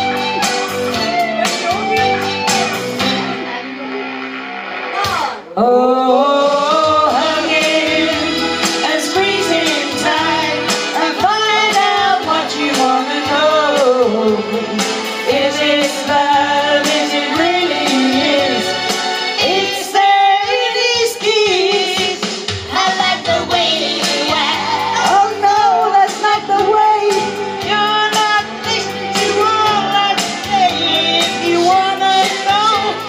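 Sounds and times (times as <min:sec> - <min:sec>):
amplified backing music: 0:00.0 - 0:33.0
women singing into microphones: 0:05.2 - 0:33.0.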